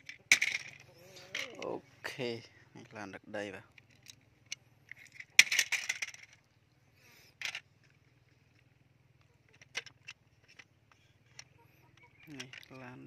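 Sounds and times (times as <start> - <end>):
plastic toy trucks clattering: 0.0 - 1.7, 3.7 - 6.4, 7.2 - 13.0.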